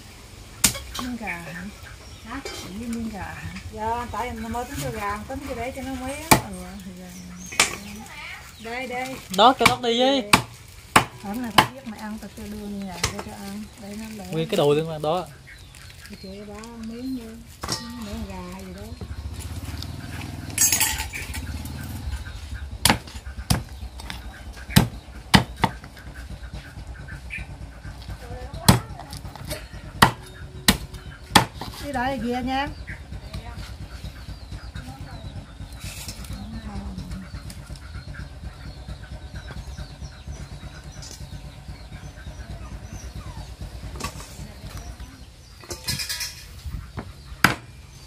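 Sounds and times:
low engine rumble: 0.0s - 48.0s
cleaver chopping on wooden board: 9.6s - 11.8s, 22.8s - 25.9s, 28.7s - 31.8s, 47.0s - 47.7s.

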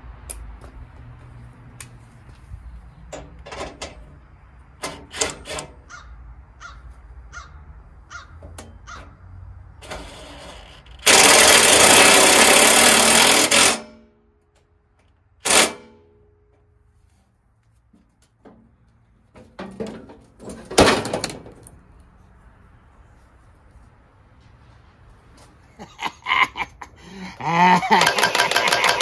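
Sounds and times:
parts and tools clicking: 9.8s - 16.0s, 27.8s - 29.0s
power drill running: 9.9s - 13.8s.

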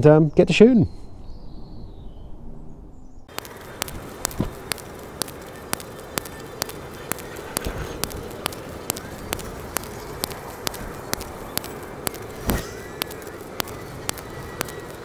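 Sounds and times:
steady hiss: 3.3s - 15.0s.

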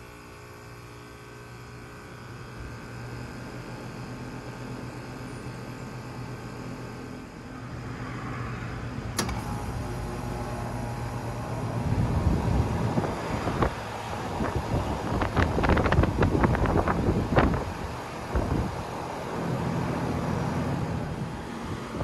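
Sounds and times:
heat pump humming and running: 0.0s - 22.0s
sharp click: 9.1s - 9.5s
wind buffeting microphone: 11.6s - 18.9s.

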